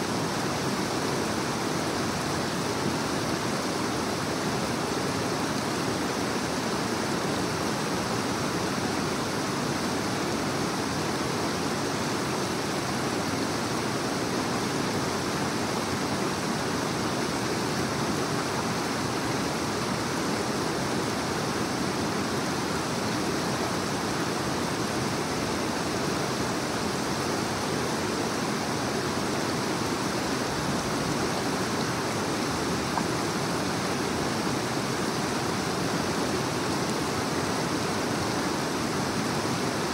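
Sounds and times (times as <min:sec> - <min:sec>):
creek rushing over stones: 0:00.0 - 0:39.9.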